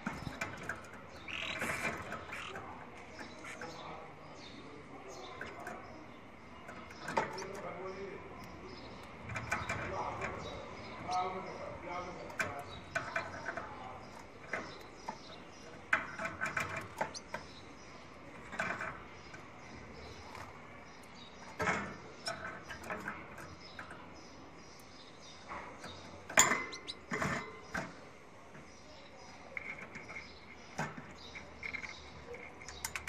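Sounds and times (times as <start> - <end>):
birds chirping: 0.0 - 33.0
sharp clicks and knocks: 6.6 - 7.8, 8.4 - 10.6, 12.3 - 17.6, 29.5 - 33.0.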